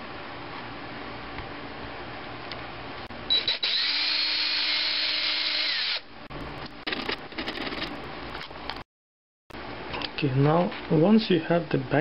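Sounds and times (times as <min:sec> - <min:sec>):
electric drill whining: 0:03.4 - 0:06.1.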